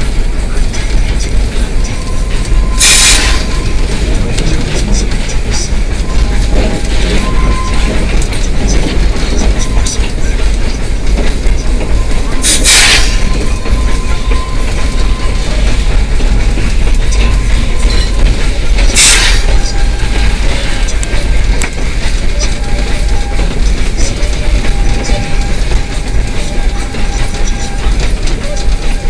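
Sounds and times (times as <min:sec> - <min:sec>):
steam locomotive rumble and rattle: 0:00.0 - 0:29.0
steam hiss: 0:02.8 - 0:03.5, 0:12.4 - 0:13.3, 0:18.9 - 0:19.6.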